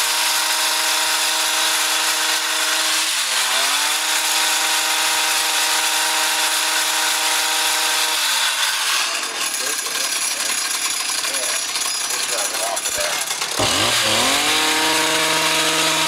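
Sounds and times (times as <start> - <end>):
hedge trimmer engine running: 0.0 - 16.0.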